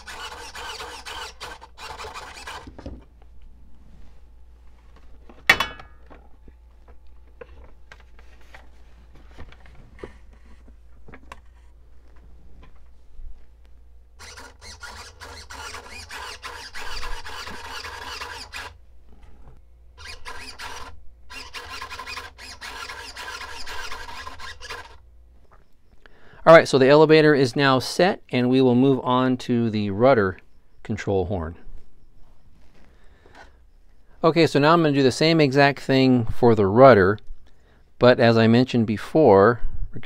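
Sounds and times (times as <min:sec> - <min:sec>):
servo whining: 0:00.0 - 0:03.2, 0:14.1 - 0:25.6.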